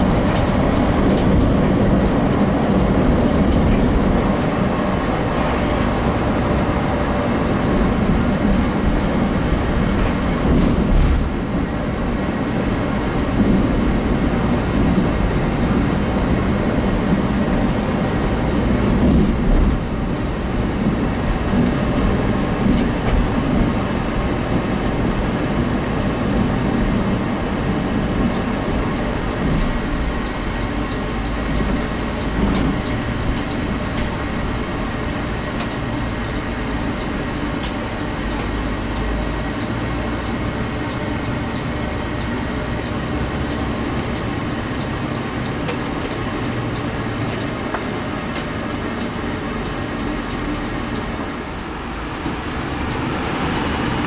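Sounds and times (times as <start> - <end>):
coach engine and road rumble: 0.0 - 54.0.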